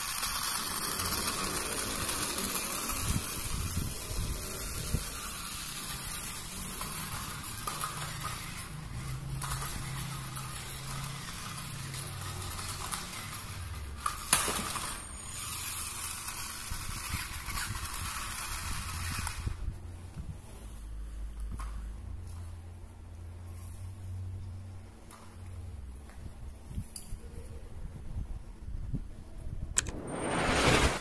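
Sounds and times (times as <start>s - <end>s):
toy motor and gears whirring: 0.0s - 19.8s.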